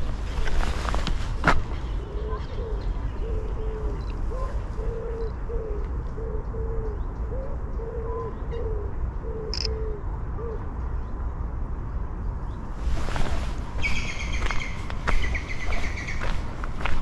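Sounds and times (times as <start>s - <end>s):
pigeons cooing: 1.8s - 10.6s.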